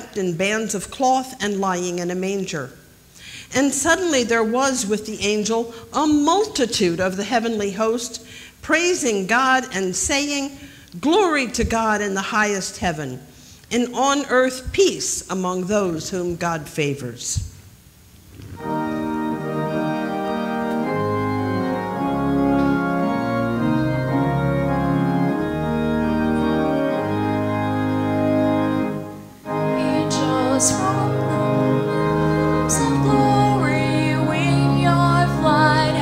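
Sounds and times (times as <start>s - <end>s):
organ playing hymn chords: 0.0s - 17.4s, 18.3s - 36.0s
people singing: 29.7s - 31.6s, 32.7s - 36.0s.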